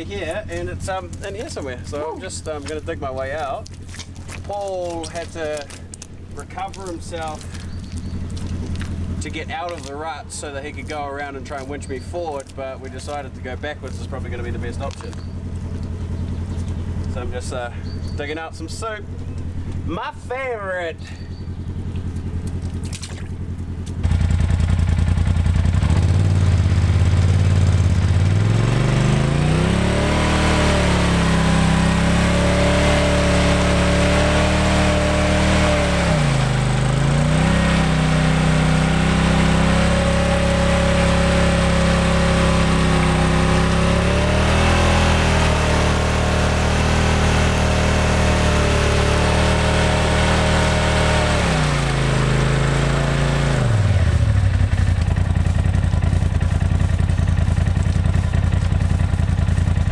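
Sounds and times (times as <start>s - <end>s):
engine revving under load: 21.0s - 59.9s.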